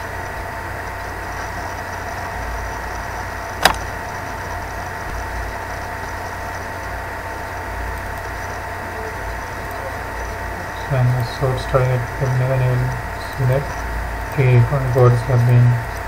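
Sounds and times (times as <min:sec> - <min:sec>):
recording hum and hiss: 0:00.0 - 0:16.0
mouse click: 0:03.6 - 0:03.8.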